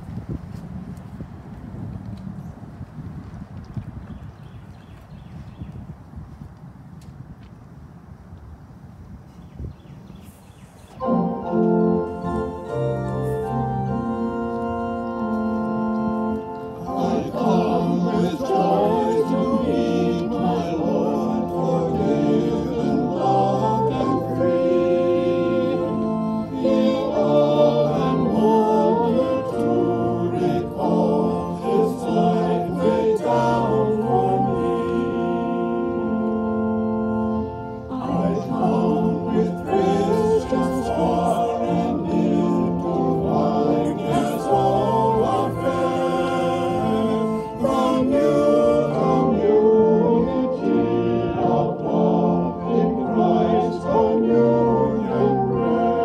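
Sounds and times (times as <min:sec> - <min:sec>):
church organ chords: 0:10.9 - 0:56.0
person singing with vibrato: 0:11.0 - 0:15.9, 0:16.8 - 0:56.0.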